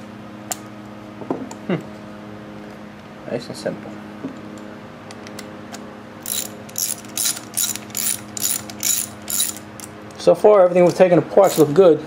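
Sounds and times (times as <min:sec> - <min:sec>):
socket ratchet clicking: 0:06.2 - 0:09.9, 0:10.9 - 0:11.7.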